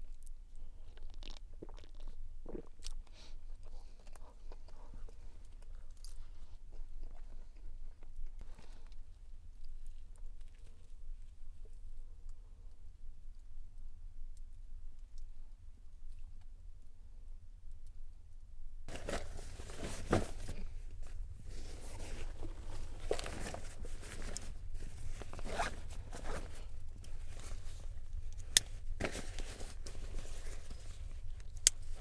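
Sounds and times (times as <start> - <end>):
backpack fabric rustling: 18.9 - 32.0.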